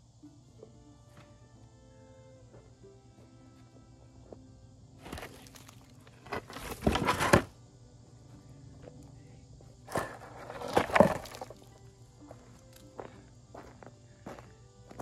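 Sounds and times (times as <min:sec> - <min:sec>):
boards scraping and crunching on gravel: 0:05.0 - 0:07.5, 0:09.9 - 0:11.8.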